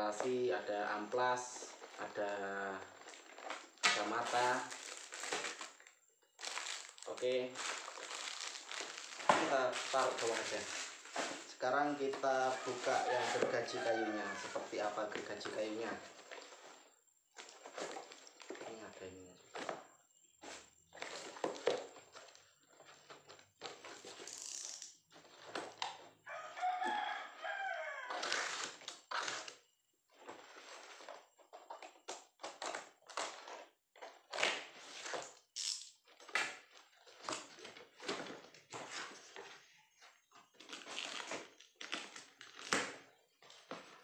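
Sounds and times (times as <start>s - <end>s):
packing tape tearing: 3.2s - 11.5s, 28.1s - 29.6s, 32.4s - 36.6s, 40.6s - 43.0s
cardboard flaps scraping: 6.5s - 16.7s.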